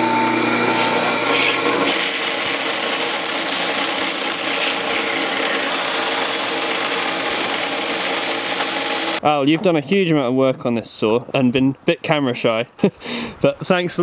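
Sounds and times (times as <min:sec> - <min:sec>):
bandsaw humming: 0:00.0 - 0:09.2
saw blade cutting timber: 0:00.6 - 0:09.2.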